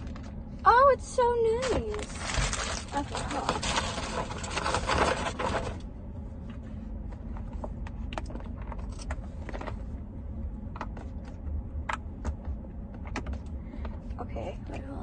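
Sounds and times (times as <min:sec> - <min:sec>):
steady low rumble: 0:00.0 - 0:15.0
plastic packaging crinkling: 0:01.9 - 0:05.8.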